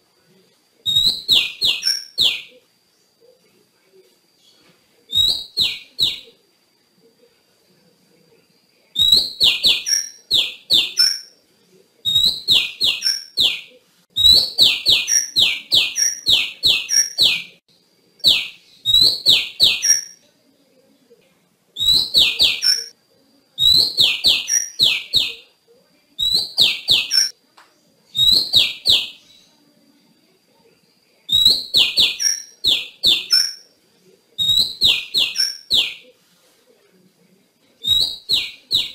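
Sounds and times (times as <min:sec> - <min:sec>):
bird calling with downward notes: 0:00.9 - 0:02.6, 0:05.1 - 0:06.4, 0:09.0 - 0:11.3, 0:12.1 - 0:17.6, 0:18.2 - 0:20.2, 0:21.8 - 0:22.9, 0:23.6 - 0:25.5, 0:26.2 - 0:27.3, 0:28.1 - 0:29.4, 0:31.3 - 0:33.6, 0:34.4 - 0:36.0, 0:37.8 - 0:38.9.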